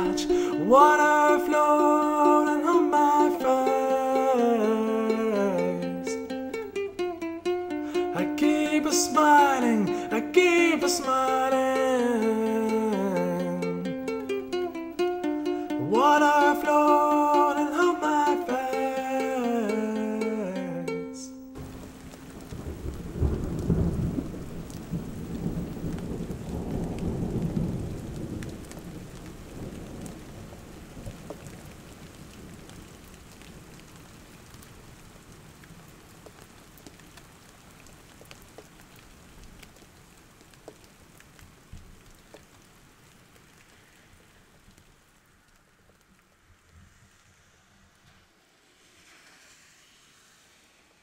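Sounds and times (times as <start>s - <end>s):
rain falling: 0.0s - 51.0s
thunder rolling: 21.6s - 31.7s.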